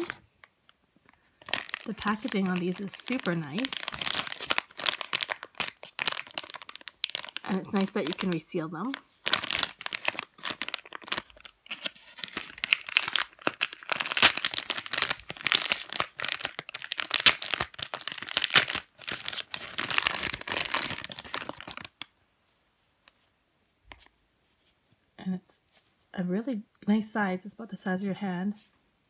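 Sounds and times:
plastic bag crinkling: 0.0 - 22.1.

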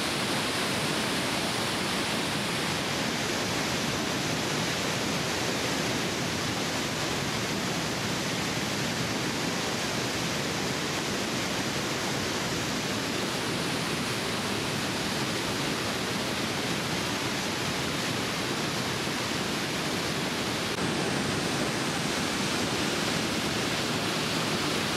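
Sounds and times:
waterfall rushing: 0.0 - 24.9.

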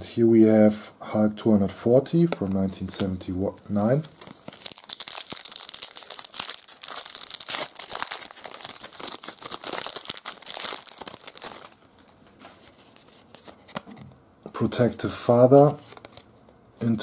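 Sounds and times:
foil wrapper crinkling and tearing: 4.1 - 12.2.

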